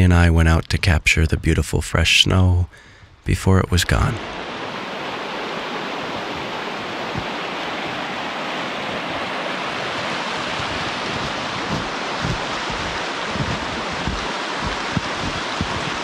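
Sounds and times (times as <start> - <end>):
river rushing over rapids: 4.2 - 16.0
soft low thumps: 10.6 - 16.0.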